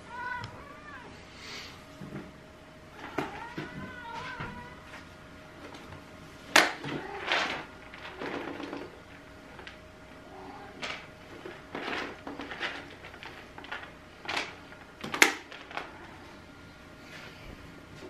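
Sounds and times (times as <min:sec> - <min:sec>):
faint steady hum: 0:00.0 - 0:18.0
plastic package rustling: 0:07.0 - 0:09.8, 0:10.7 - 0:16.0.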